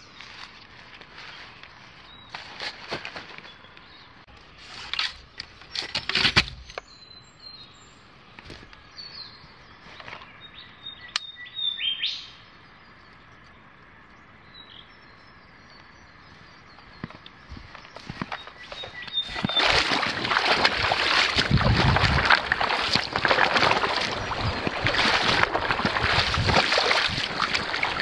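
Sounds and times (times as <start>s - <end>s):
backpack and camping gear rustling: 0.0s - 3.7s, 16.9s - 28.0s
small birds chirping: 6.6s - 28.0s.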